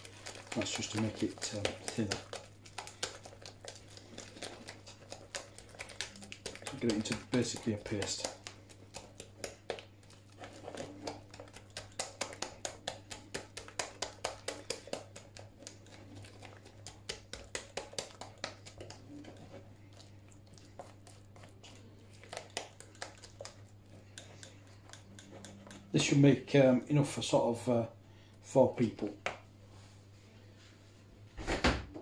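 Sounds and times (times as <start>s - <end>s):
utensil beating batter in glass bowl: 0.0s - 27.4s.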